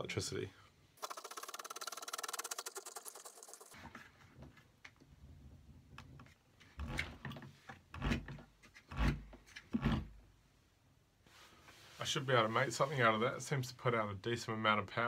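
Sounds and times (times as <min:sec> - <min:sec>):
rapid ticking rotor: 0:01.0 - 0:03.7
rubbing and clicking: 0:01.0 - 0:03.8.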